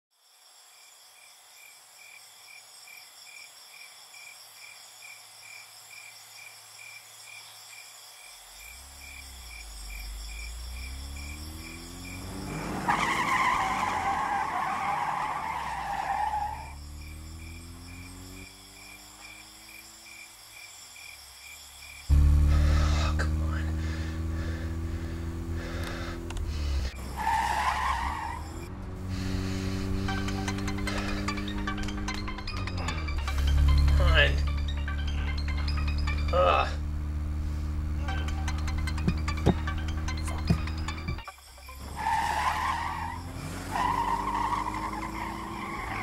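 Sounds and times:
crickets chirping: 0.1s - 46.0s
car engine: 8.7s - 20.4s, 21.2s - 46.0s
tyres skidding: 8.8s - 20.4s, 22.0s - 46.0s.

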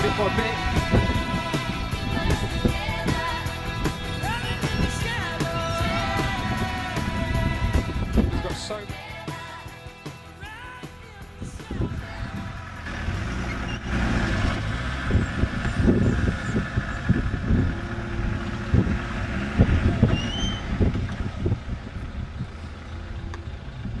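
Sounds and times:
off-road engine rumbling: 0.0s - 24.0s.

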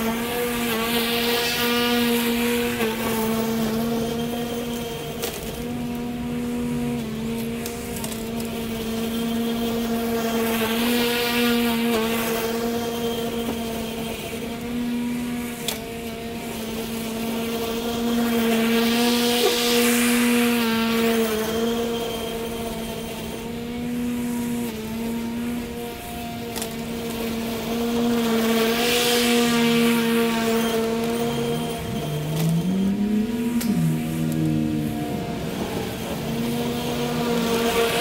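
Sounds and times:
electric lawn mower humming: 0.0s - 38.0s.

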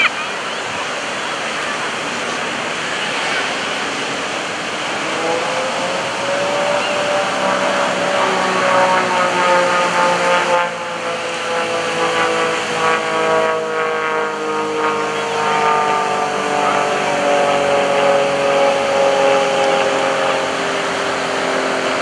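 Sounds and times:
surf and wind rushing: 0.0s - 13.6s
propeller plane engine droning: 0.0s - 22.0s.

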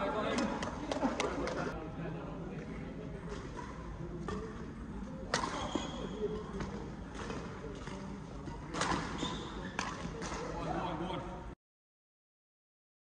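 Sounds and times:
racket hitting shuttlecock: 5.3s - 10.5s.

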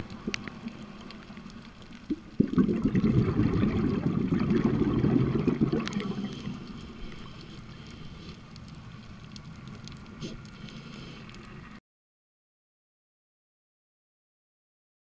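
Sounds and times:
faint clicks: 0.0s - 2.4s, 5.7s - 11.8s
underwater bubbling and gurgling: 0.0s - 11.8s.

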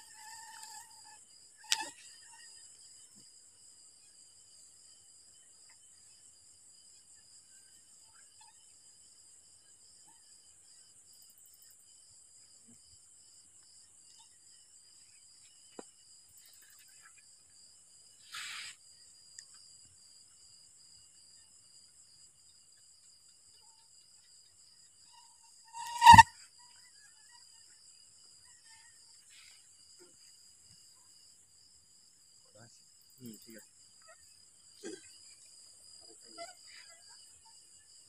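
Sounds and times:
crickets chirring: 0.0s - 38.0s
short hiss: 18.2s - 18.8s, 25.8s - 26.2s
loud sharp pitched sound: 25.8s - 26.3s.

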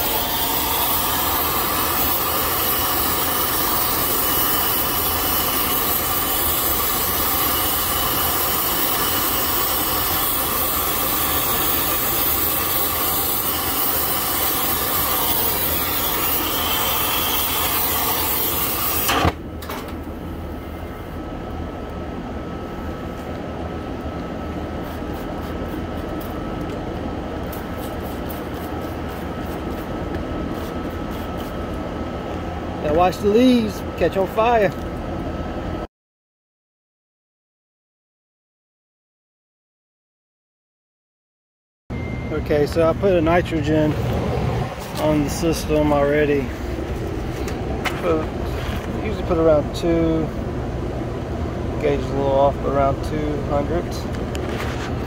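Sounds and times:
brazing torch hissing: 0.0s - 19.4s
torch shutoff pop: 17.4s - 19.9s.

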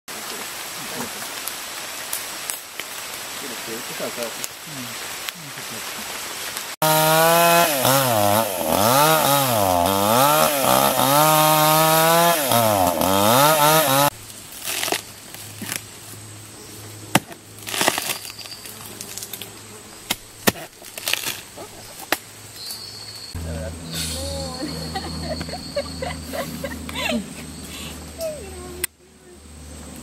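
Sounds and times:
chainsaw cutting wood: 6.8s - 15.0s.

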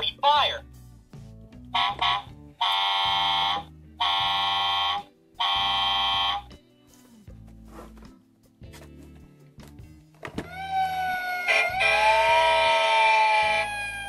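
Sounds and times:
toy electronic horn blasts: 1.7s - 6.5s, 10.6s - 14.0s.

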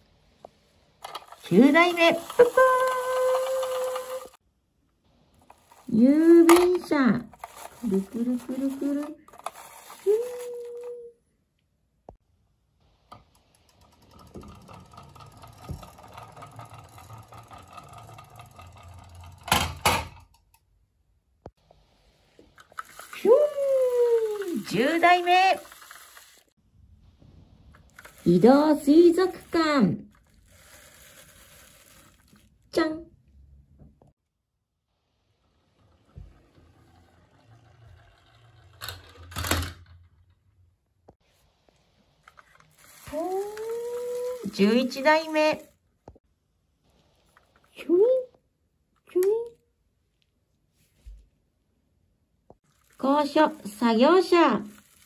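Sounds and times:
toy wheels whirring and ticking: 1.0s - 4.4s, 5.4s - 11.0s, 13.1s - 19.7s, 22.5s - 26.6s, 27.8s - 32.5s, 35.8s - 39.7s, 42.3s - 45.8s, 52.7s - 55.0s.

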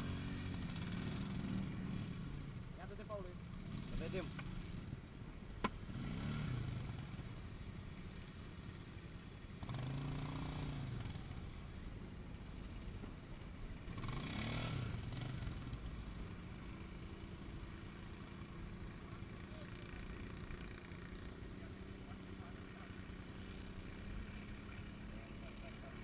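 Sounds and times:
engine revving: 0.0s - 3.0s, 3.6s - 4.5s, 5.8s - 7.2s, 9.6s - 11.5s, 13.9s - 15.9s
atv engines running: 0.0s - 26.0s.

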